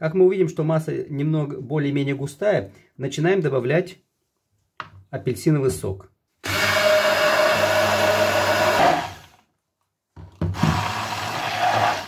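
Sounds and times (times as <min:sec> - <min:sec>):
immersion blender running: 0:06.4 - 0:09.4, 0:10.5 - 0:12.0.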